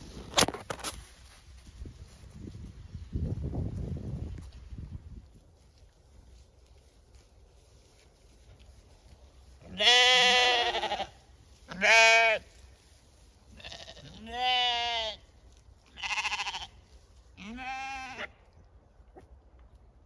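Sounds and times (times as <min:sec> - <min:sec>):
sheep bleating: 0:09.7 - 0:12.5, 0:13.5 - 0:15.2, 0:15.9 - 0:16.8, 0:17.4 - 0:18.3.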